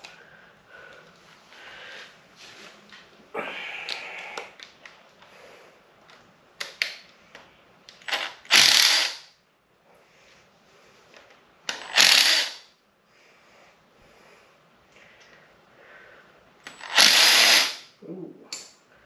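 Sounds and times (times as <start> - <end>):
ratchet wrench ratcheting: 8.1 - 9.3, 11.7 - 12.6, 16.7 - 17.8.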